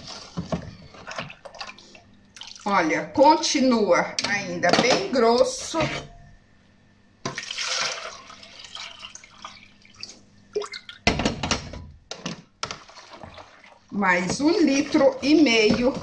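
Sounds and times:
water splashing into a basin: 1.1s - 2.7s, 7.3s - 11.0s, 12.6s - 13.9s.

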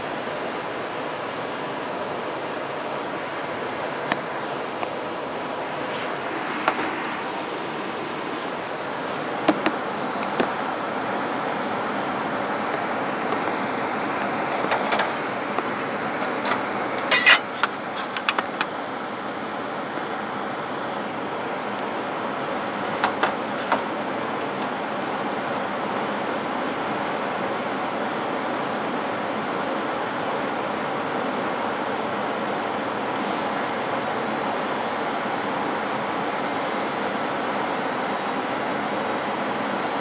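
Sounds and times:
blower air rushing: 0.0s - 18.0s.

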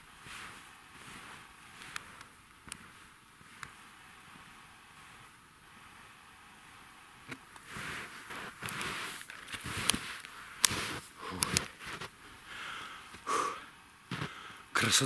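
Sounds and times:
skis crunching over snow: 0.0s - 6.0s, 7.6s - 13.2s, 14.1s - 14.5s.

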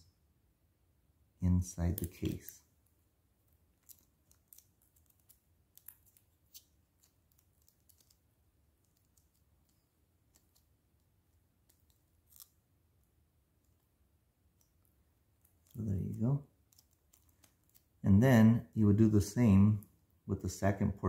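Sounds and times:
plastic pieces clicking: 3.8s - 10.7s, 16.6s - 17.9s.

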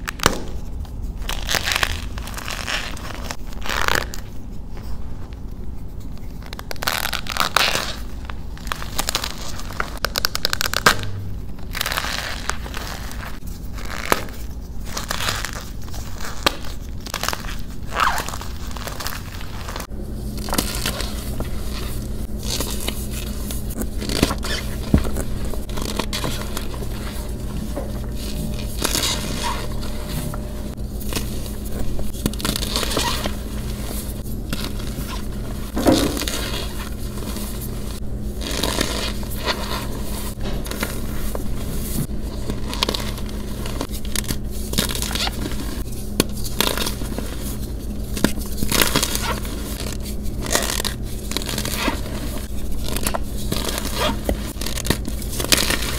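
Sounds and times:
chalk crunching and crackling: 11.6s - 55.9s
low hum: 18.3s - 55.9s.

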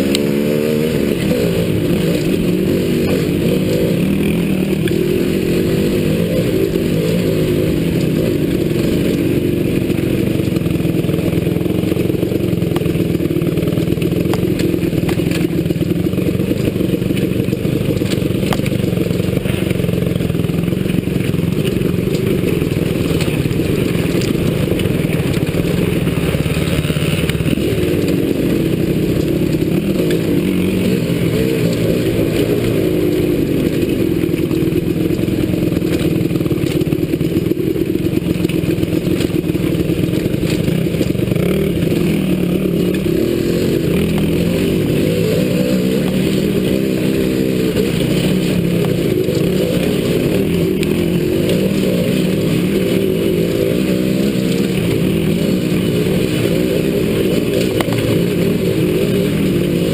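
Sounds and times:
dirt bike engine revving: 0.0s - 59.9s
bike knocks and rattles: 2.6s - 30.8s.

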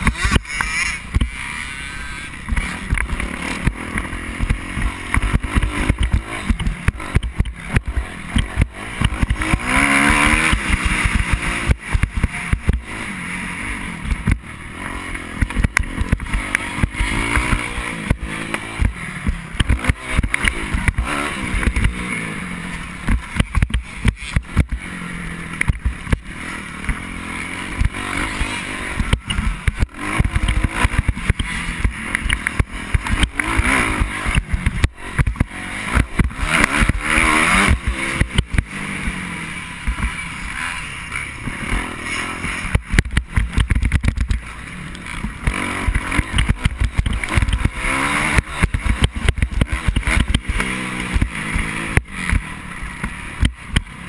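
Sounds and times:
motocross bike engine revving: 0.0s - 54.0s
knocks and thumps from bumps: 2.4s - 12.9s, 23.0s - 24.9s, 25.6s - 26.3s, 27.8s - 38.8s, 41.4s - 44.5s, 45.2s - 53.9s.

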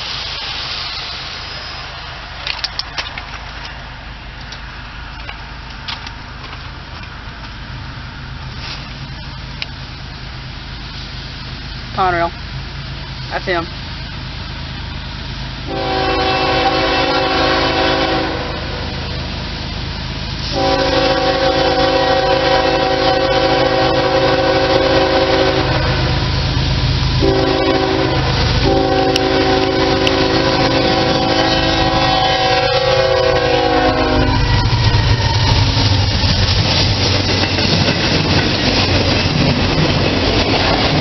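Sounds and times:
low rumble of train: 0.0s - 41.0s
locomotive air horn: 15.7s - 19.2s, 20.4s - 26.4s, 27.2s - 35.4s.

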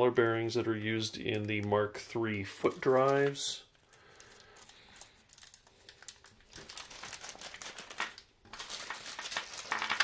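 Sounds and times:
plastic bag crinkling: 2.5s - 10.0s.

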